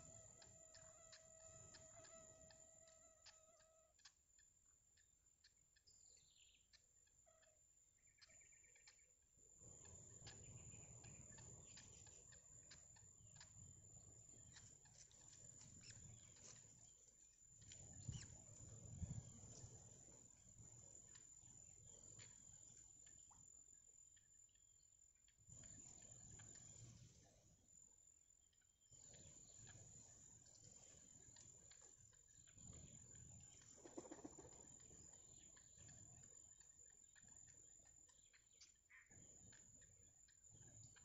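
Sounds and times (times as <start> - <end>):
repeated chirping call: 0.2 - 17.0
wind rumble on microphone: 17.8 - 19.7.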